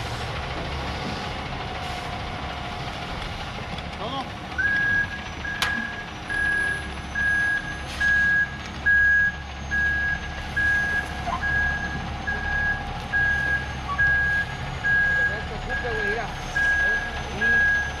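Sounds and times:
truck engine rumble: 0:00.0 - 0:18.0
truck backup alarm beeping: 0:04.5 - 0:18.0.

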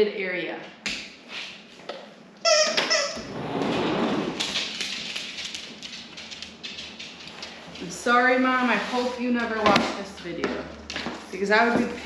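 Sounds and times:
sliding door squeal: 0:02.6 - 0:04.4
sliding door rolling rumble: 0:03.2 - 0:04.8.

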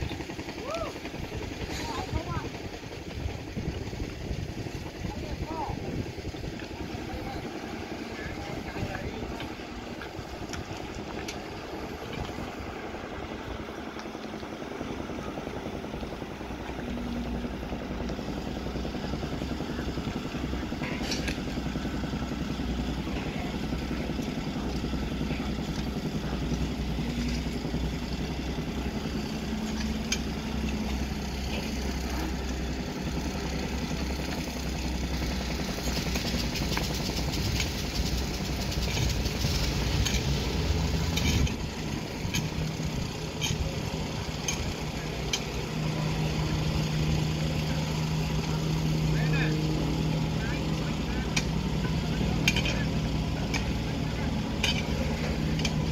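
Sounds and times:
excavator diesel engine running: 0:00.0 - 0:55.9.

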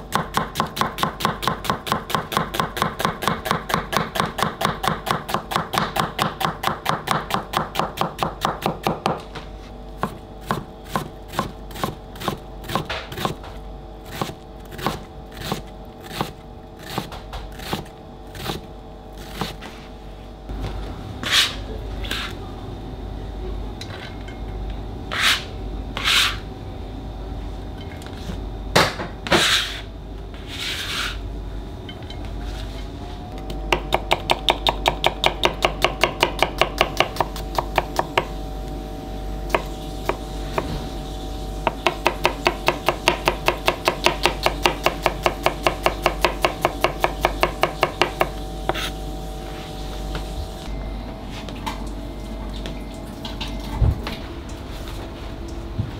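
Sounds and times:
knife chopping on cutting board: 0:14.1 - 0:18.6, 0:41.7 - 0:49.0.

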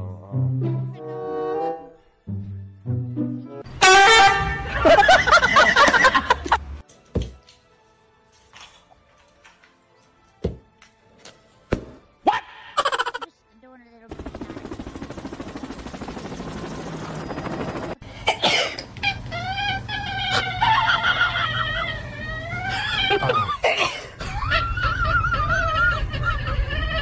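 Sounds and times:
cats meowing and yowling: 0:19.1 - 0:23.4.

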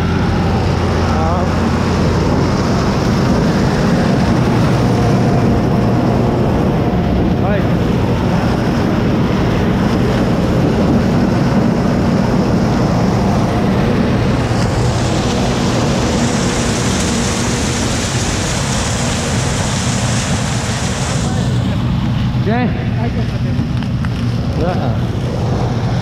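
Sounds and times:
tractor diesel engine under load: 0:00.0 - 0:26.0.

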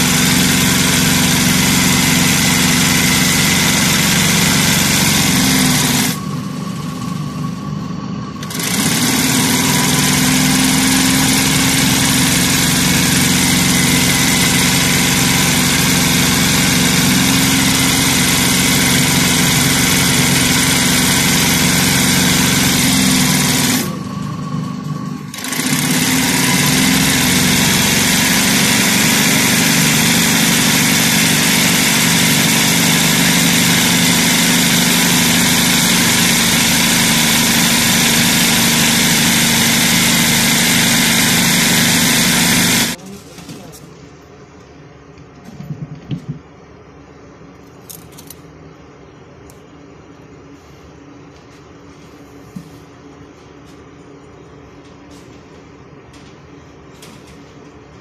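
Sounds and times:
sewing machine stitching: 0:00.0 - 0:07.2, 0:08.4 - 0:43.0.

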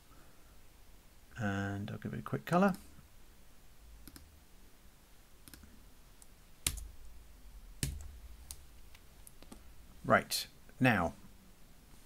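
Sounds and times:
computer mouse clicking: 0:04.0 - 0:04.3, 0:05.4 - 0:06.9, 0:09.2 - 0:09.7.

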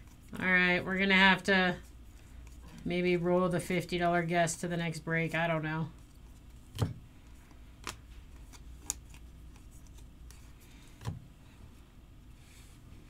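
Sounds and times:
trading cards flipped through: 0:06.0 - 0:11.2.

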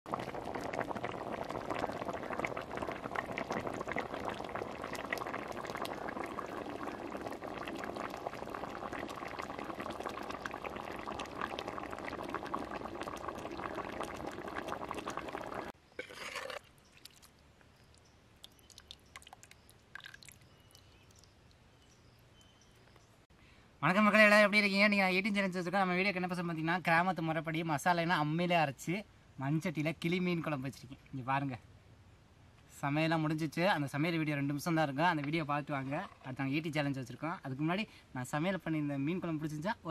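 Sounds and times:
curry bubbling in a clay pot: 0:00.0 - 0:22.8, 0:33.3 - 0:37.6.

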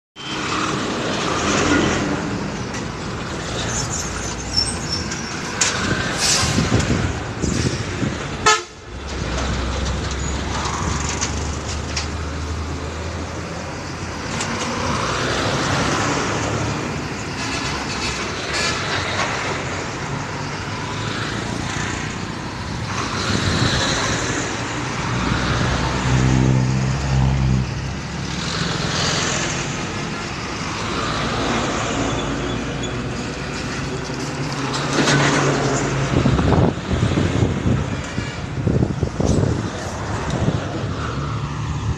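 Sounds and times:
diesel trucks passing: 0:00.2 - 0:41.9
road traffic noise: 0:00.2 - 0:41.9
vehicle horn: 0:08.4 - 0:08.8.

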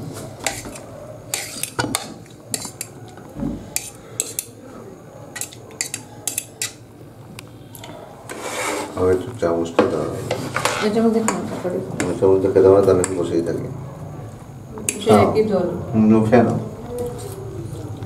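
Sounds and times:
metal fork clinking on dish: 0:05.4 - 0:06.8.

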